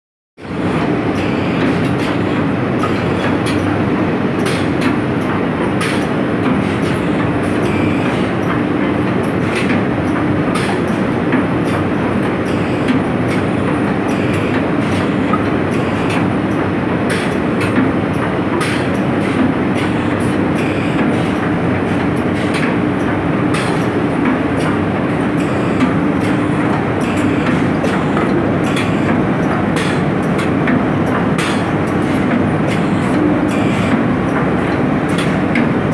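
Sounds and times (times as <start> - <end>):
mechanical clacks and knocks: 25.4 - 35.8.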